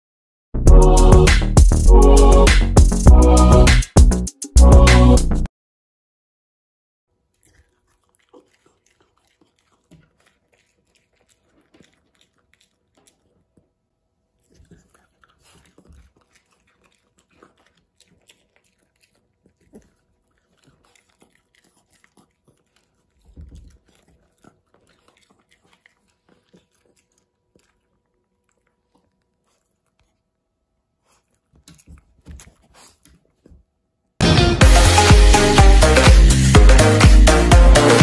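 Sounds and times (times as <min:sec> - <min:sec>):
dog chewing a cookie: 0:07.3 - 0:30.4, 0:31.0 - 0:33.8.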